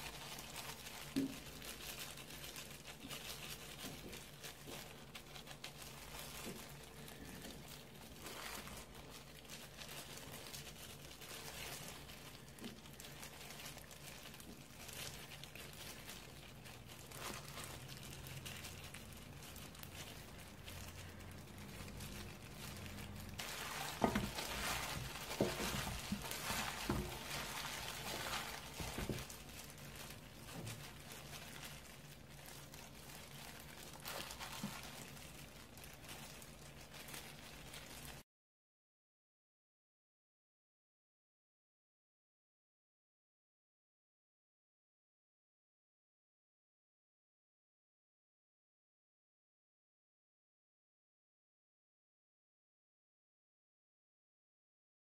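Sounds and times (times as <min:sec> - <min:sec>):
plastic gloves crinkling: 0:00.0 - 0:38.2
wet seasoning squishing: 0:00.0 - 0:38.2.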